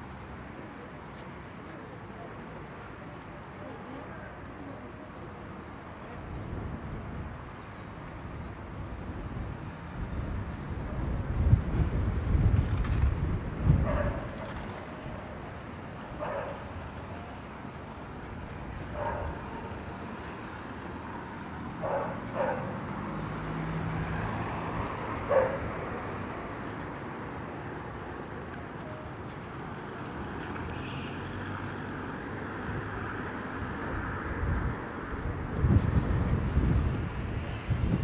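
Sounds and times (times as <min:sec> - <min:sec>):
street noise: 0:00.0 - 0:38.0
dog barking: 0:16.2 - 0:16.6, 0:19.0 - 0:19.7, 0:21.8 - 0:22.8, 0:25.3 - 0:25.6
vehicle passing: 0:21.7 - 0:27.2.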